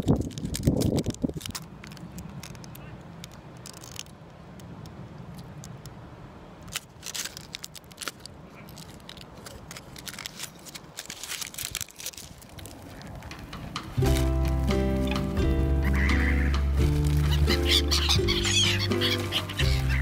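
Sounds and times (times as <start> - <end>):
foil wrapper crinkling: 0.0 - 4.1, 6.6 - 13.4, 14.0 - 15.1, 16.8 - 20.0.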